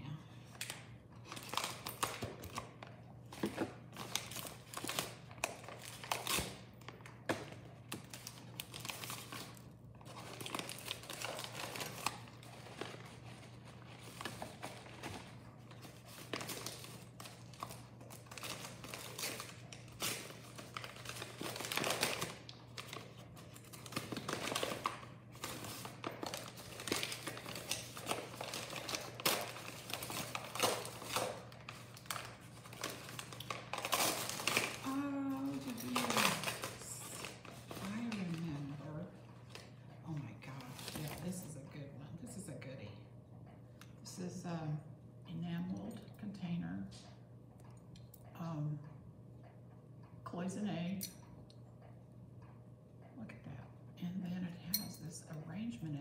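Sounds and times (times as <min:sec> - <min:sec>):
paper wrapping crinkling: 0:00.6 - 0:38.9.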